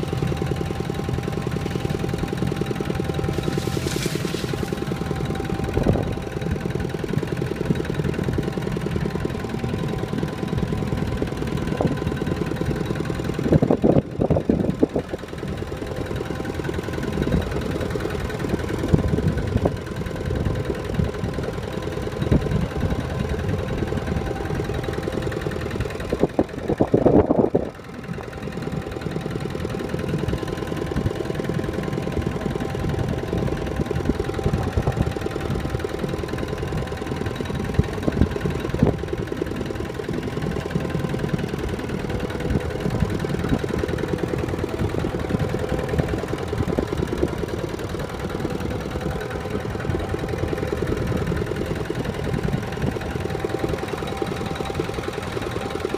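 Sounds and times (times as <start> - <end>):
tractor engine running: 0.0 - 55.9.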